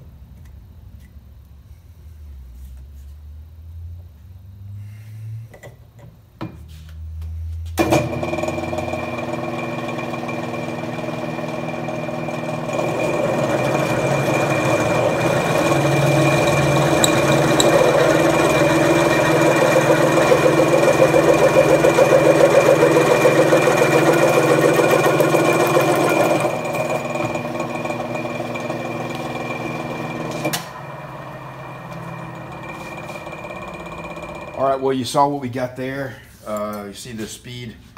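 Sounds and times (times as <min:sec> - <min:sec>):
drill cutting through steel: 0:08.4 - 0:34.7.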